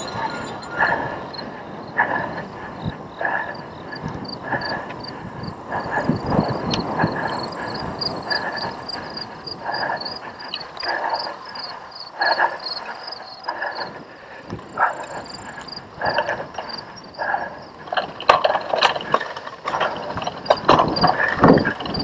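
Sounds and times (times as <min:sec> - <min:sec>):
rhythmic rush of noise: 0:00.0 - 0:22.0
bike frame rattling: 0:14.6 - 0:22.0.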